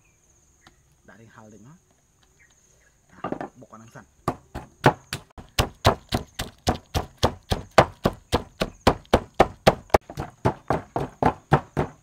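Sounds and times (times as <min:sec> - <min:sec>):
wooden pestle pounding in mortar: 0:04.2 - 0:12.0.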